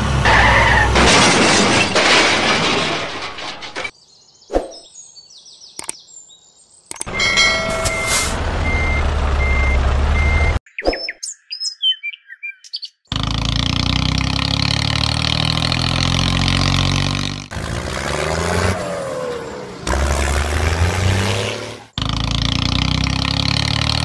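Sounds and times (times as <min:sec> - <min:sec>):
birds chirping: 0:03.9 - 0:08.0, 0:10.2 - 0:13.1
reversing alarm beeps: 0:07.1 - 0:10.6
vehicle engine running: 0:07.1 - 0:10.6, 0:13.1 - 0:24.0.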